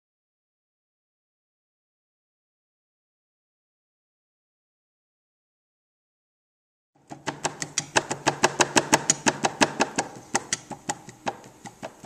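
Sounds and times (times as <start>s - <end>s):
hands slapping clay: 7.1s - 12.0s.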